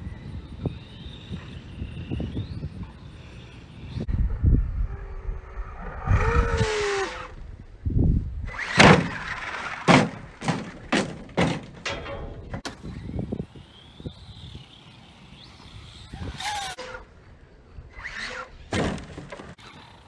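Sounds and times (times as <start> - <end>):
electric motor whining: 0.0 - 7.5, 12.8 - 18.7
toy truck landing thuds: 8.5 - 12.8, 18.7 - 19.8.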